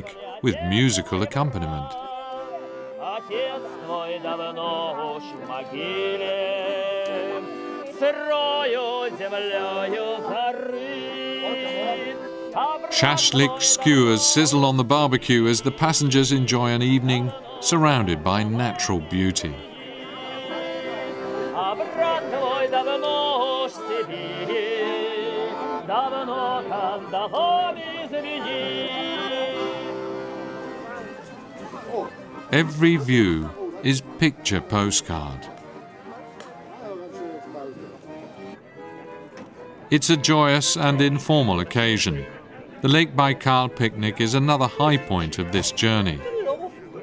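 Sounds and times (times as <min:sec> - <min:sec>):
man singing: 0:00.0 - 0:30.1
button accordion playing: 0:00.0 - 0:47.0.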